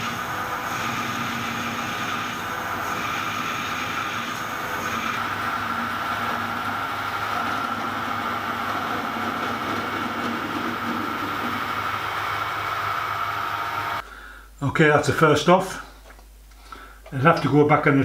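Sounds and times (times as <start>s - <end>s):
metal lathe whining: 0.0s - 14.0s.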